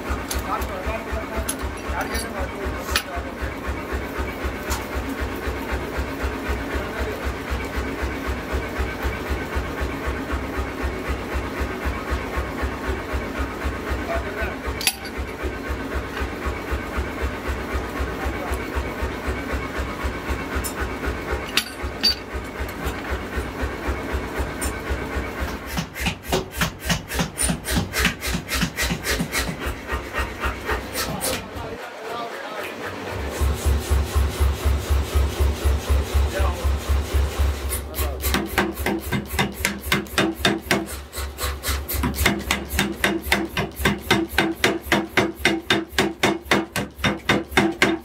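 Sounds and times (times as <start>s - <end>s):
metal grinding and scraping: 20.6s - 23.1s
electric motor pulsing: 27.1s - 38.2s.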